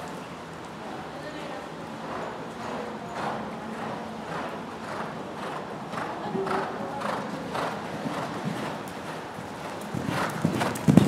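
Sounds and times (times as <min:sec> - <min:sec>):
horse hooves on dirt: 0:03.1 - 0:11.0.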